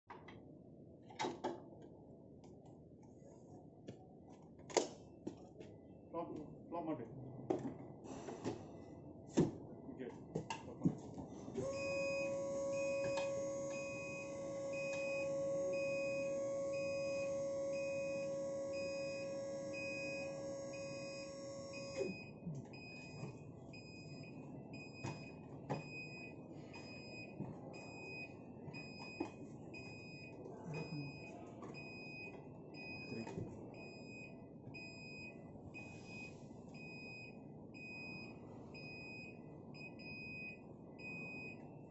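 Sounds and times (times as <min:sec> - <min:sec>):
lift motor humming: 0:11.6 - 0:22.2
warning beeper beeping: 0:11.6 - 0:22.3.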